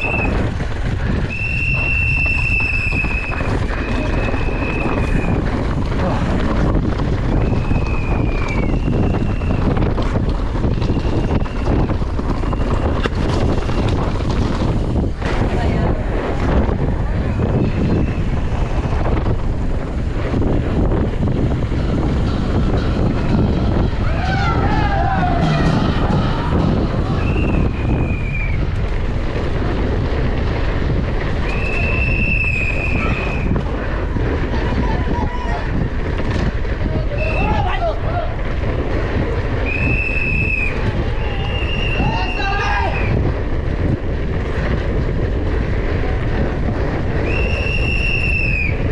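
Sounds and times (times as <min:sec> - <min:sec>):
bike knocking over rough ground: 0:00.0 - 0:18.1, 0:35.8 - 0:37.0
wind buffeting microphone: 0:00.0 - 0:48.9
high whistling tones: 0:01.2 - 0:05.4, 0:07.3 - 0:09.8, 0:23.0 - 0:28.8, 0:31.5 - 0:33.6, 0:39.6 - 0:43.2, 0:47.2 - 0:48.9
high steady squeal: 0:01.2 - 0:05.6, 0:07.3 - 0:09.9, 0:10.6 - 0:13.8, 0:17.1 - 0:29.2, 0:31.4 - 0:33.7.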